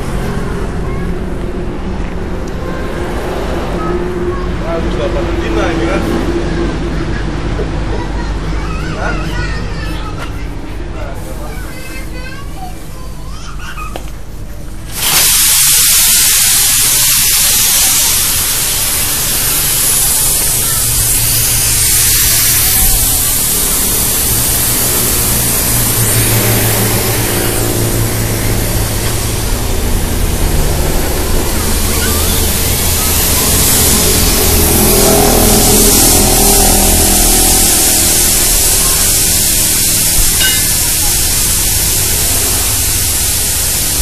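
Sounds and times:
engine running: 0.0 - 13.4, 14.0 - 44.0
loud even hiss: 14.2 - 44.0.

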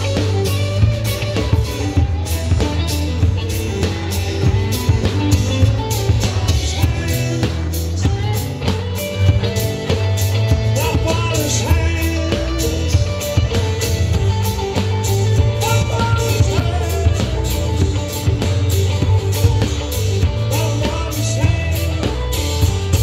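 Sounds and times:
bass guitar: 0.0 - 23.0
drum kit: 0.0 - 23.0
electric guitar: 0.0 - 23.0
person singing: 4.7 - 13.9, 15.4 - 18.3, 20.2 - 23.0.

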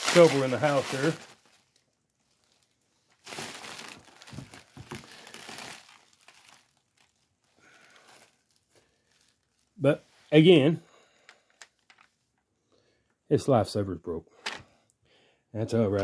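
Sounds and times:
bubble wrap crinkling: 0.0 - 10.4, 11.3 - 12.4.

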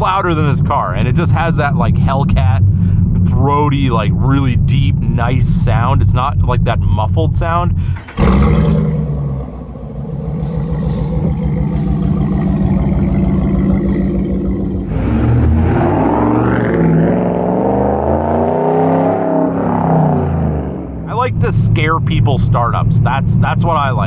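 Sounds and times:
throaty engine idling: 0.0 - 17.3, 20.2 - 24.0
pickup truck engine starting: 7.3 - 24.0
engine revving: 7.8 - 24.0.

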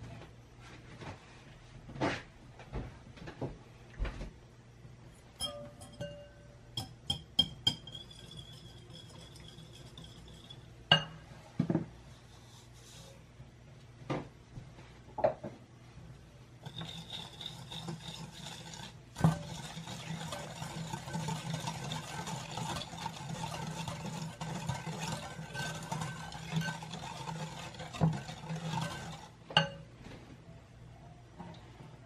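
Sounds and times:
whisk clinking in a glass bowl: 5.4 - 11.2, 16.6 - 29.8.

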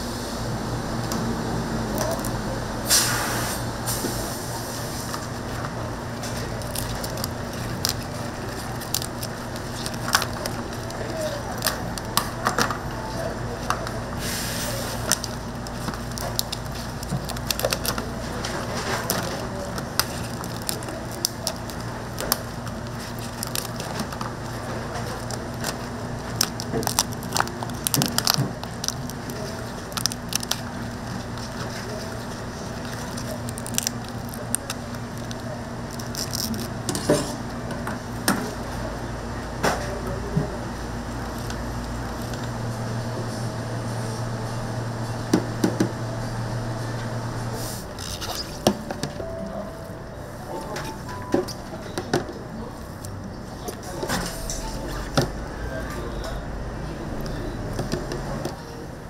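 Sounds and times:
steady low hum: 0.0 - 59.0
brief hiss: 2.9 - 4.4
cooking crackles and snaps: 4.9 - 12.8, 13.4 - 37.2
low hum: 49.0 - 59.0.

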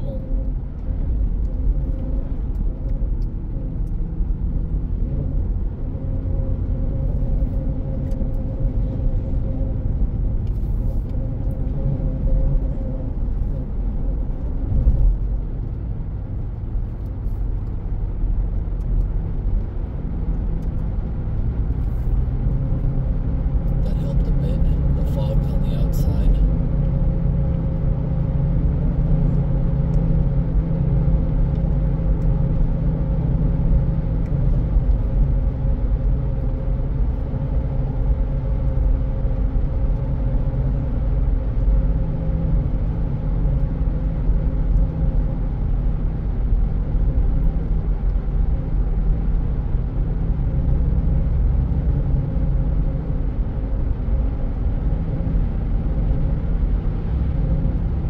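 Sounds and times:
car tyre and engine rumble: 0.0 - 58.0.

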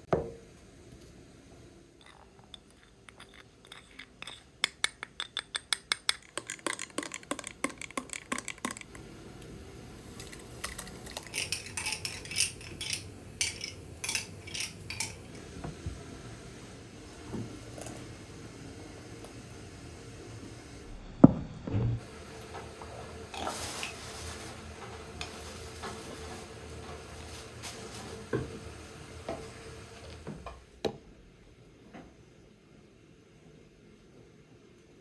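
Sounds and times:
utensils tapping on glass: 2.0 - 9.0, 10.7 - 15.2
metal spoon clinking against glass: 11.2 - 15.2.

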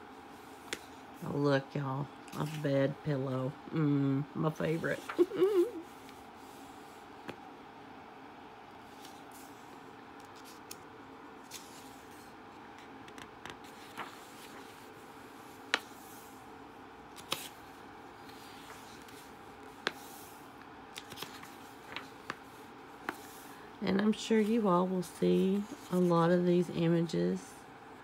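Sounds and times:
faint steady hum: 0.0 - 28.0
paper rustling: 4.7 - 5.8, 11.4 - 12.3, 13.0 - 16.3, 17.1 - 23.4.

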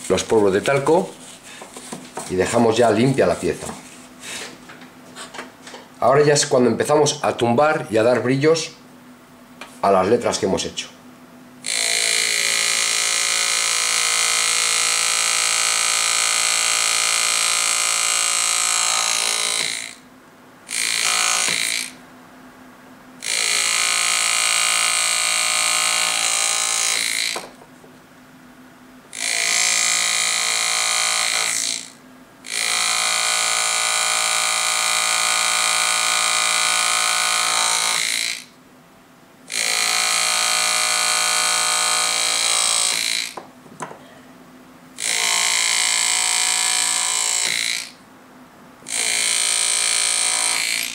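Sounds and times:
engraving handpiece motor buzzing: 11.6 - 20.0, 20.7 - 22.0, 23.2 - 27.6, 29.1 - 38.6, 39.5 - 43.4, 45.0 - 48.0, 48.8 - 50.9.

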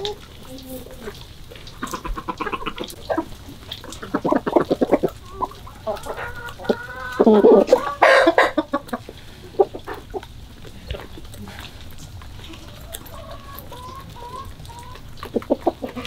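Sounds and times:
chickens clucking: 0.0 - 16.0
loud long chicken call: 4.0 - 8.9, 12.5 - 16.0.

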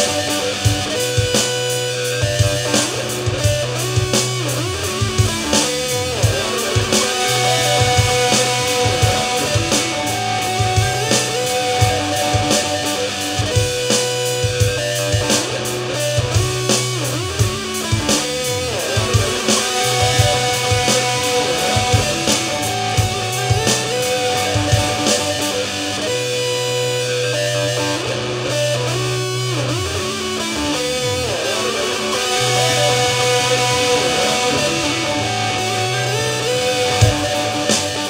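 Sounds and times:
guitar riff: 0.0 - 38.0
drum hits: 4.9 - 12.8, 36.8 - 38.0.

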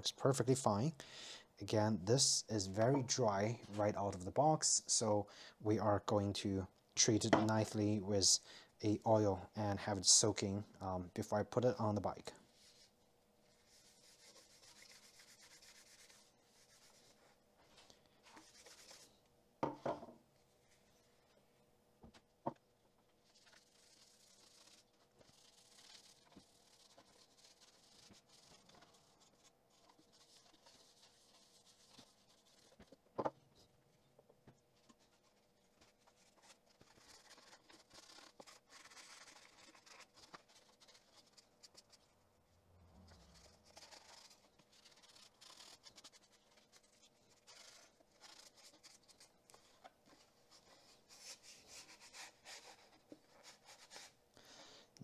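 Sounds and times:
paper towel rubbing leather: 13.5 - 17.4, 23.2 - 33.0, 34.8 - 42.1, 43.1 - 54.1.

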